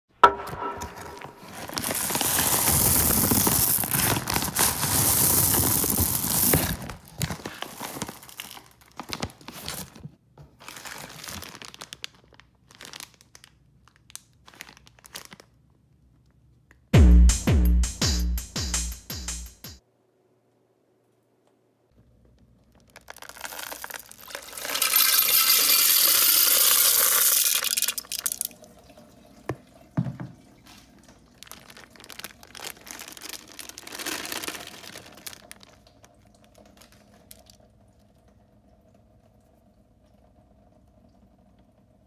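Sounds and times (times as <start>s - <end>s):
plastic bag crinkling: 1.0s - 15.6s, 22.4s - 28.5s, 30.7s - 37.6s
candies pouring and rattling: 1.4s - 9.8s, 10.6s - 15.5s, 22.7s - 28.6s, 31.3s - 37.6s.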